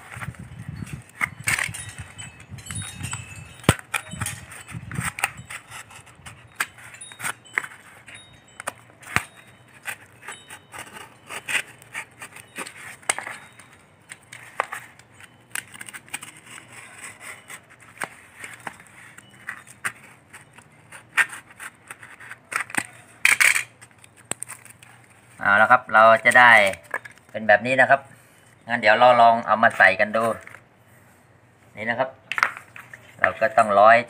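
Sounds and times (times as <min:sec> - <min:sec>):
knife cutting cardboard: 0:03.7 - 0:13.4, 0:14.2 - 0:23.1.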